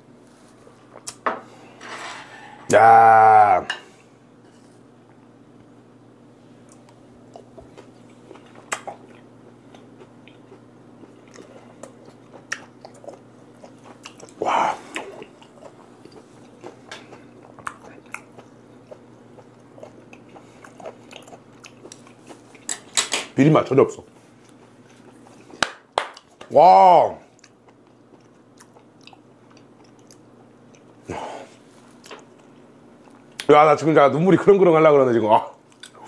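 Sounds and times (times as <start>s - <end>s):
chewing mouth sounds: 6.7s - 22.7s, 27.4s - 31.0s.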